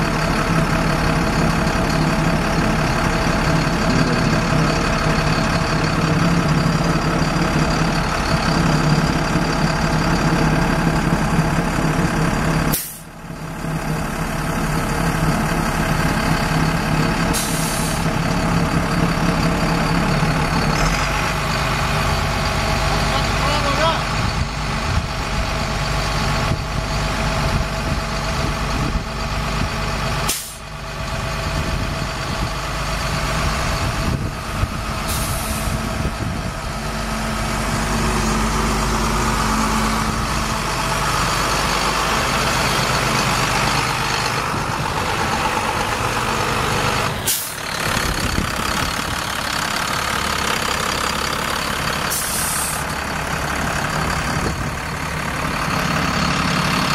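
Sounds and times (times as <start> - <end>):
diesel truck engine running: 0.0 - 56.9
short hydraulic hisses: 12.7 - 13.1.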